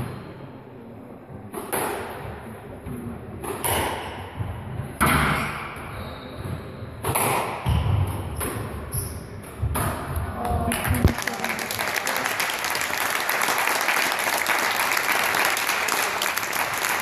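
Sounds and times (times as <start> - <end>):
racket hitting squash ball: 3.4 - 5.9, 6.5 - 10.2.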